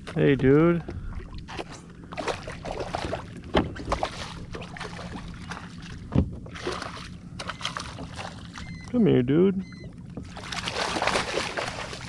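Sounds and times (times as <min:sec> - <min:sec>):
fish splashing at water surface: 0:10.3 - 0:12.0.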